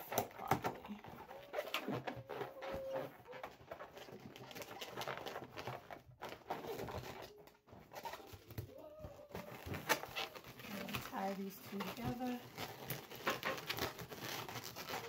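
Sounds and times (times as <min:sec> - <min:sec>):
balloons squeaking and rubbing: 0:00.0 - 0:15.0.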